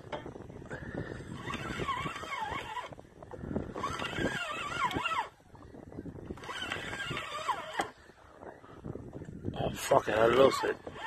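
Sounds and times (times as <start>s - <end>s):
fishing reel drag buzzing: 1.2s - 3.0s, 3.6s - 5.4s, 6.3s - 8.0s.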